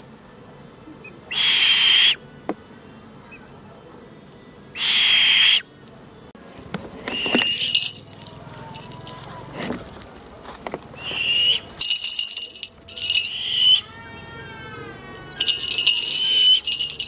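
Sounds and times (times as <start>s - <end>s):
owl hissing screech: 1.3s - 2.2s, 4.8s - 5.7s, 13.4s - 15.4s
knocks and rustles: 6.5s - 11.0s.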